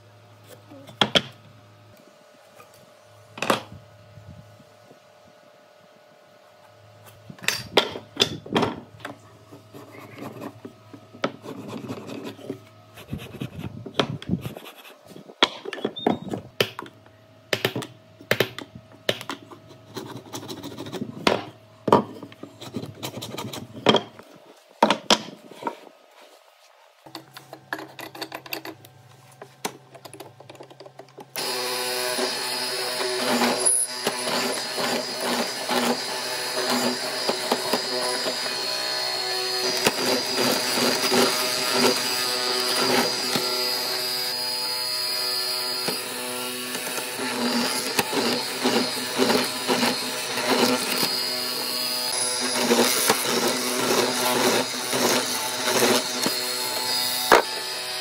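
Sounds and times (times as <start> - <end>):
electric power tool running: 31.4 - 58.0.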